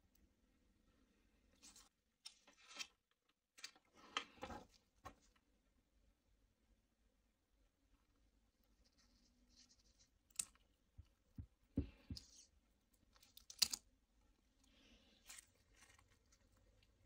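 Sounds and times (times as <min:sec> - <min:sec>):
soft crinkling: 0:08.0 - 0:17.0.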